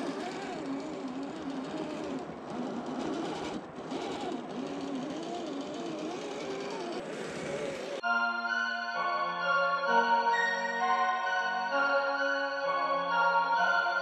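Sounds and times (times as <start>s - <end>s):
rc car motor and gears whining: 0.0s - 8.0s.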